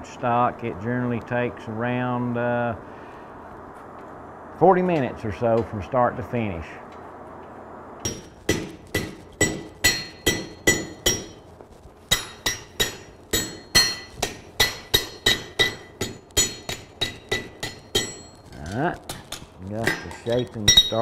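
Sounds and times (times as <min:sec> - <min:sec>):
hammer striking steel on anvil: 0:08.0 - 0:11.4, 0:12.1 - 0:21.0.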